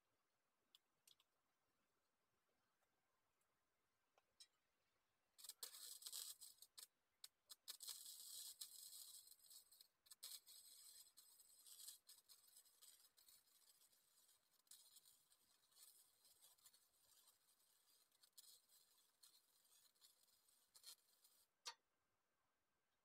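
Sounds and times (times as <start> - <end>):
welding arc crackling hiss: 5.4 - 6.8.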